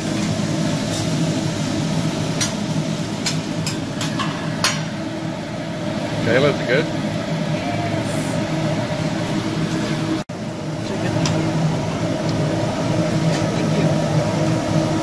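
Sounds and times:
vegetables sizzling on griddle: 0.0s - 6.4s, 7.2s - 10.0s
ventilation hum and rush: 0.0s - 15.0s.

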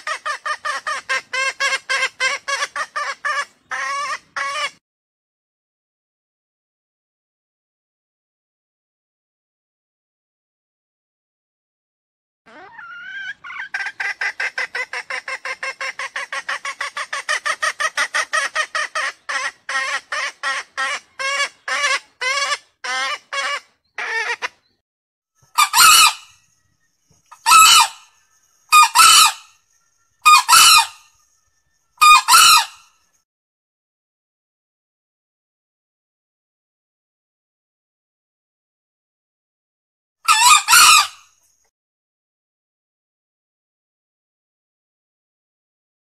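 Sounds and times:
junglefowl clucking: 0.0s - 4.8s, 12.5s - 24.6s, 25.5s - 26.3s, 27.3s - 28.1s, 28.7s - 29.4s, 30.2s - 31.0s, 32.0s - 32.8s, 40.3s - 41.2s
junglefowl crowing: 0.0s - 4.8s, 12.5s - 24.5s, 25.6s - 26.3s, 27.4s - 29.5s, 30.2s - 31.1s, 32.0s - 32.9s, 40.3s - 41.3s.

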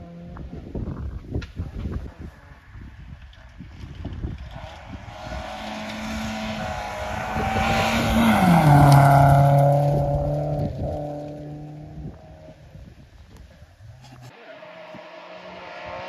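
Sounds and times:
gravel and tyres hissing: 0.7s - 16.0s
rally car engine passing: 3.7s - 12.6s, 14.3s - 16.0s.

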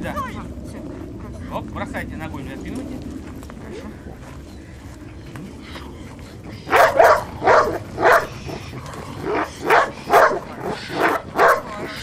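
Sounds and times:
dog barking sharply: 6.7s - 8.3s, 9.4s - 11.8s.

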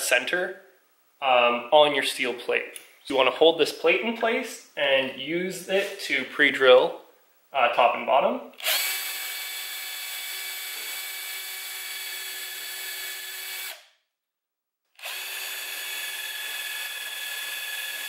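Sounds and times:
cordless drill whining into steel: 8.6s - 13.9s, 15.0s - 18.0s.

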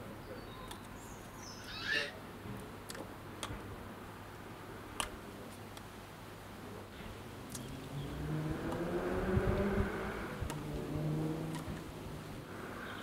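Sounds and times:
faint outdoor hiss: 0.0s - 13.0s
short bird call: 1.4s - 2.2s
sharp clicks: 5.0s - 5.9s, 11.5s - 11.9s.

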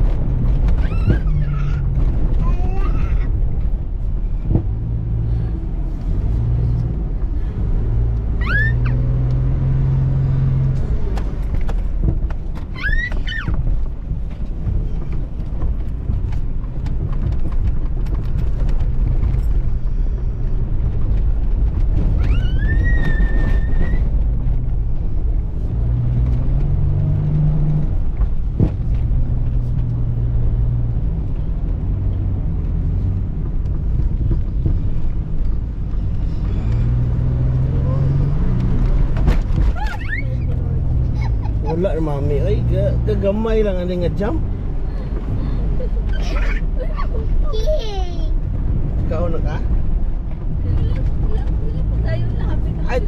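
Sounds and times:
off-road vehicle engine: 0.0s - 53.0s
high squeals: 8.3s - 9.0s, 22.2s - 24.1s.

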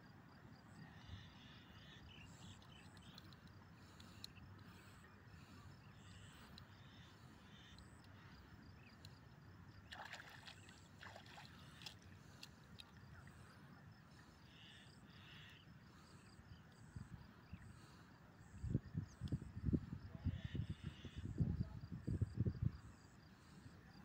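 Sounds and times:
faint water splashes: 1.8s - 14.9s.

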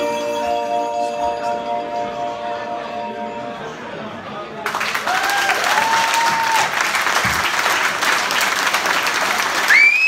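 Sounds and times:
audience applauding: 4.6s - 10.0s
audience cheering: 4.7s - 10.0s
rising whistle: 9.7s - 10.0s.

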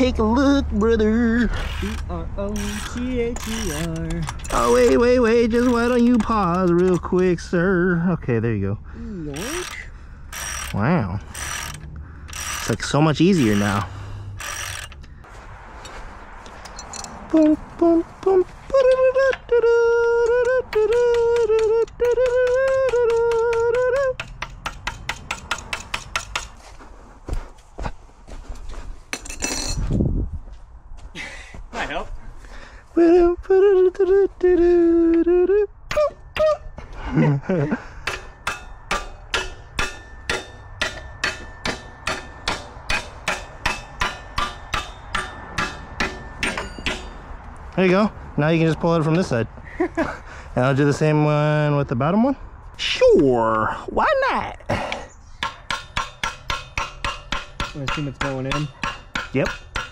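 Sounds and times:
person singing wordless tune: 0.0s - 2.5s, 17.3s - 24.3s, 32.9s - 36.6s
ratchet wrench clicking: 1.5s - 7.1s, 9.4s - 15.2s, 20.2s - 26.5s
hammer striking steel bolt: 20.8s - 26.6s, 38.0s - 47.2s, 55.4s - 59.9s.

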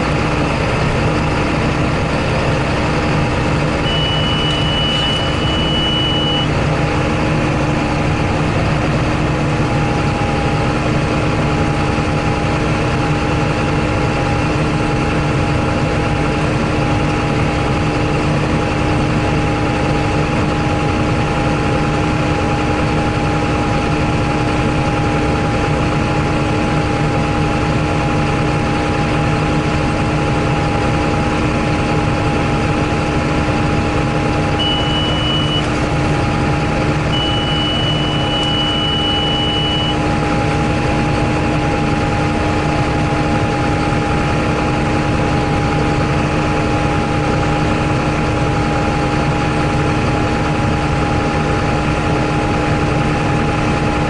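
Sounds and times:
tractor diesel engine under load: 0.0s - 54.0s
short high-pitched beep: 3.8s - 6.5s, 34.6s - 35.7s, 37.1s - 40.0s.

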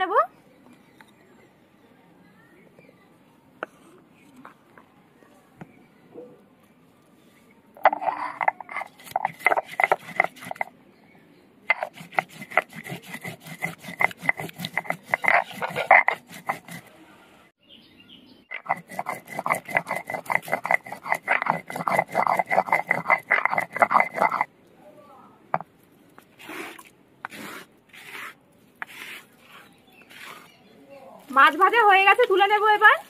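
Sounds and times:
stone scraping on stone: 7.8s - 10.7s, 11.7s - 16.9s, 18.5s - 24.5s, 26.4s - 30.6s.

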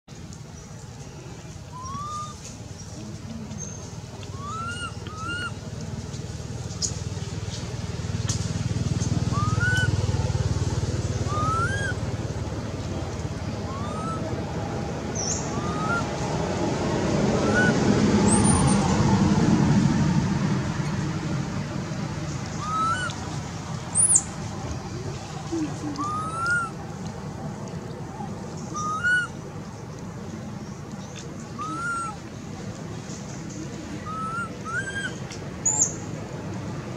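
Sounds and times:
short rising whistled calls: 1.7s - 2.4s, 4.3s - 5.6s, 11.2s - 12.0s, 13.7s - 14.2s, 15.2s - 16.1s, 22.6s - 23.2s, 28.7s - 29.4s, 34.0s - 36.0s
baby monkey crying: 1.8s - 2.3s, 11.3s - 12.0s, 15.5s - 16.1s, 22.6s - 23.2s, 25.6s - 26.8s, 28.8s - 29.3s.

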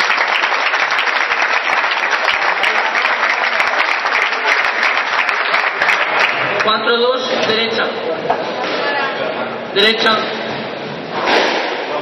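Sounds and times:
spectators applauding: 0.0s - 6.8s.

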